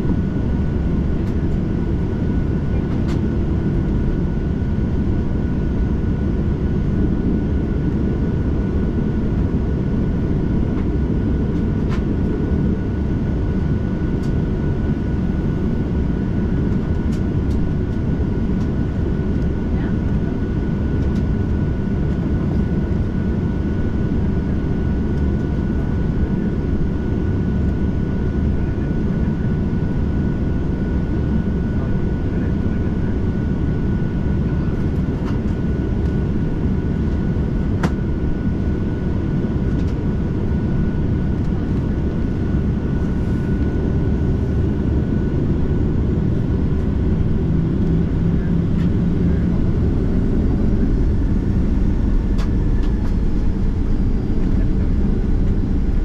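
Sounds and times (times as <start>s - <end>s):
jet engine low rumble: 0.0s - 56.0s
thin steady whine: 42.1s - 56.0s.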